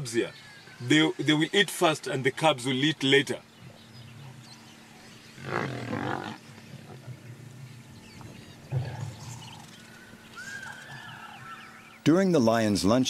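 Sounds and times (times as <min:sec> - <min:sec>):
lionesses growling: 0:03.6 - 0:11.6.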